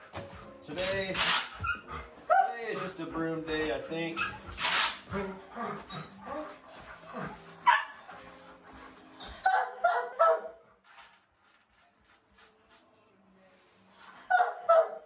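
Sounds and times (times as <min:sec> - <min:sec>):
dogs barking and yipping: 0:01.3 - 0:03.0, 0:03.6 - 0:10.7, 0:14.0 - 0:15.0.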